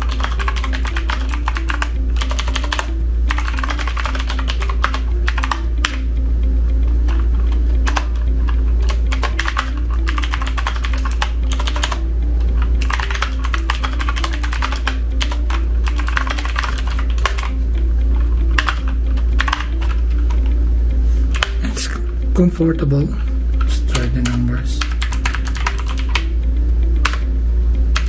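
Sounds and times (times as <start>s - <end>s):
fast keyboard typing clicks: 0.0s - 6.0s, 7.0s - 12.0s, 12.6s - 20.5s, 21.3s - 21.7s, 23.6s - 26.3s, 27.0s - 27.3s.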